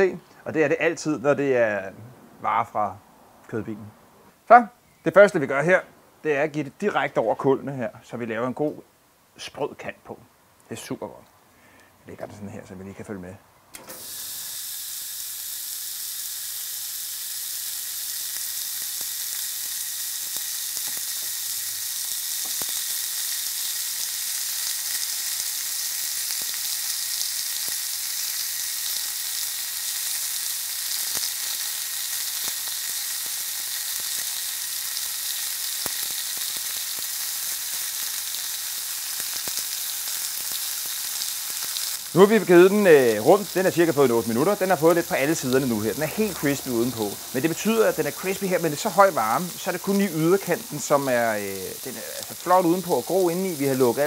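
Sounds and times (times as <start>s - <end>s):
meat sizzling on grill: 13.8s - 54.0s
faint crackles: 17.7s - 54.0s.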